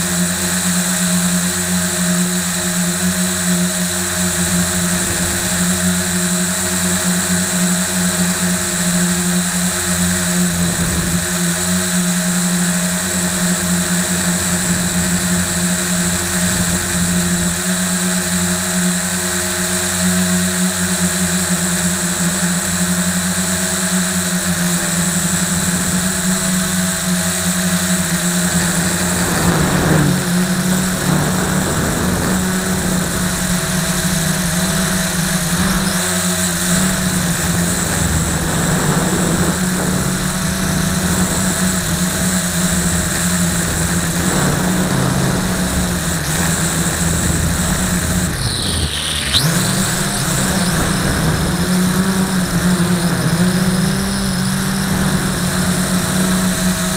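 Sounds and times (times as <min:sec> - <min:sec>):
quadcopter propellers buzzing: 0:00.0 - 0:56.9.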